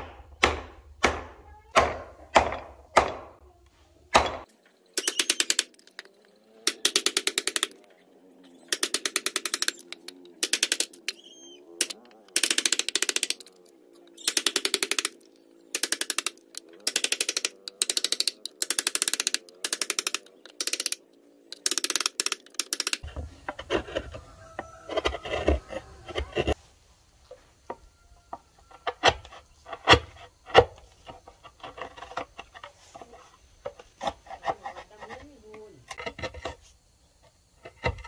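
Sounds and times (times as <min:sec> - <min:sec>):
chisel rapid clicking: 0:05.0 - 0:06.0, 0:06.7 - 0:07.8, 0:08.7 - 0:13.6, 0:14.2 - 0:23.1
chisel scraping and cracking wood: 0:17.5 - 0:26.6, 0:28.6 - 0:36.6.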